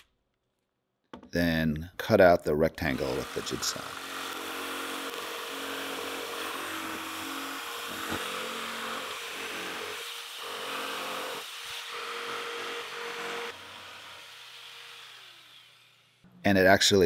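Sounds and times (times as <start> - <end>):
jigsaw cutting plywood: 2.8 - 16.2.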